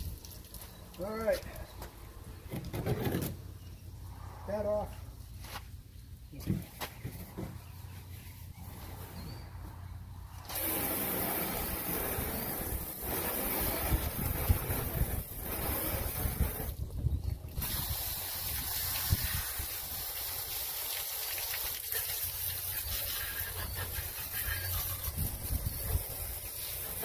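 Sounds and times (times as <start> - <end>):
hose water spraying on boat hull: 10.4 - 27.0.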